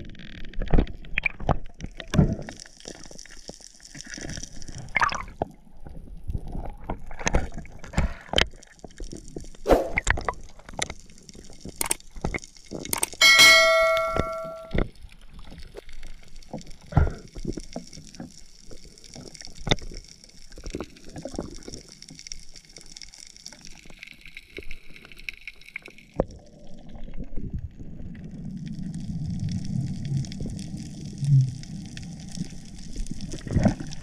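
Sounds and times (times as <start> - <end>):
faint crackling hiss: 0.0 - 34.0
underwater ringing clink: 13.2 - 14.8.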